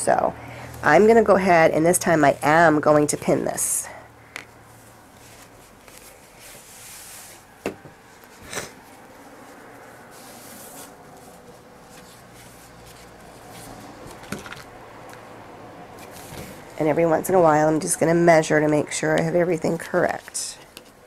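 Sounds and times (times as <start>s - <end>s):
fabric rustling and rubbing: 0.8s - 3.7s, 4.5s - 14.7s, 15.9s - 16.9s.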